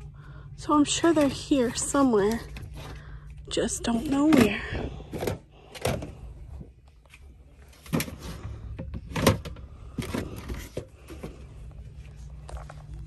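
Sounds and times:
low steady hum: 0:00.0 - 0:13.0
plastic containers clacking: 0:04.0 - 0:06.3, 0:07.8 - 0:11.5.

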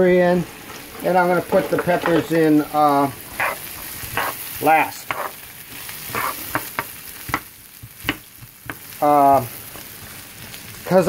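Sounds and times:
onions sizzling in oil: 0:00.0 - 0:11.0
wooden spoon scraping pan: 0:00.7 - 0:05.4, 0:06.0 - 0:06.9.

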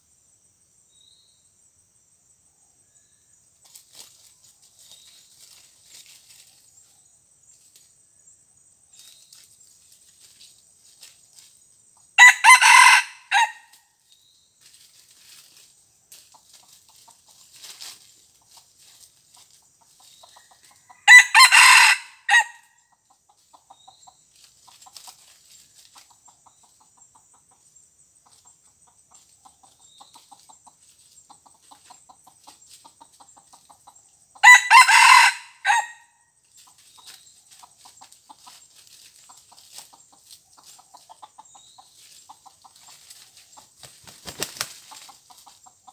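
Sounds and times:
rooster crowing: 0:12.2 - 0:13.7, 0:20.9 - 0:22.7, 0:34.4 - 0:36.2
soft clucking: 0:25.9 - 0:34.1, 0:36.6 - 0:43.8.

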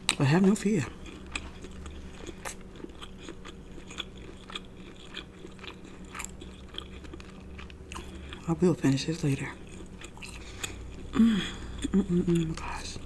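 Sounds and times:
person chewing with wet mouth clicks: 0:01.0 - 0:08.5.

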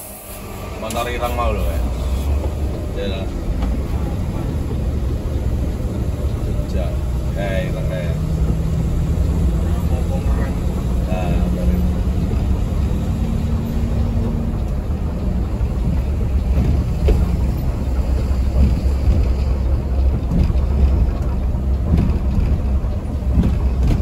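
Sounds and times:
bus engine and road rumble: 0:00.0 - 0:24.0
light knocks and rattles: 0:11.7 - 0:24.0.

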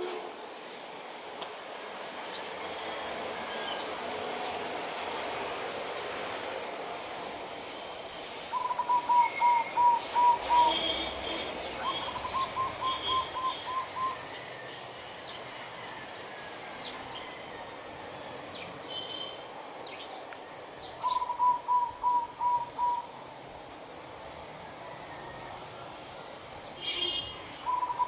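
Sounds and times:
dove staccato cooing: 0:08.6 - 0:11.0.

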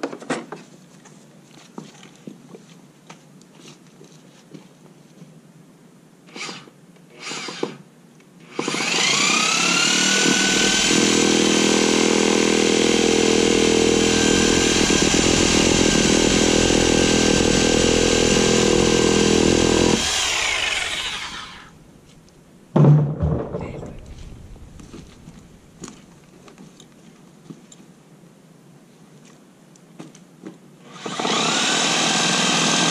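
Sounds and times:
reciprocating saw cutting wood: 0:08.5 - 0:21.8, 0:31.0 - 0:32.9.

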